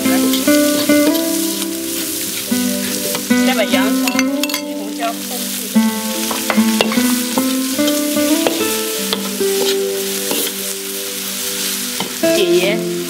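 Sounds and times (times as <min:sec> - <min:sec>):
background music with plucked notes: 0:00.0 - 0:13.0
food sizzling in a wok: 0:00.0 - 0:13.0
metal spatula scraping wok: 0:06.6 - 0:10.6.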